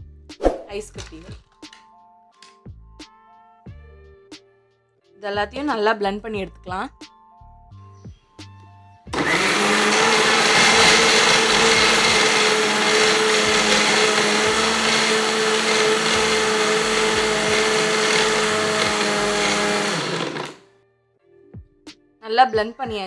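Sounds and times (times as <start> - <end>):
mixer grinder motor whirring: 9.1 - 20.6.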